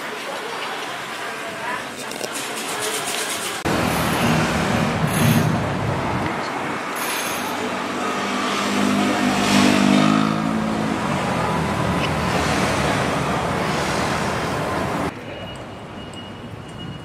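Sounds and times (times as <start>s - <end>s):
street traffic noise: 0.0s - 17.0s
engine passing close by: 3.7s - 15.1s.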